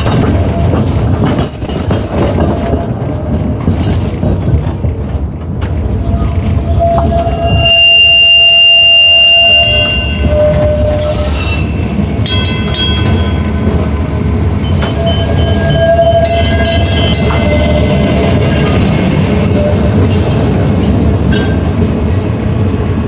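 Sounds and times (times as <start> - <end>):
streetcar rolling on rails: 0.0 - 23.0
wheels squealing: 6.5 - 12.0.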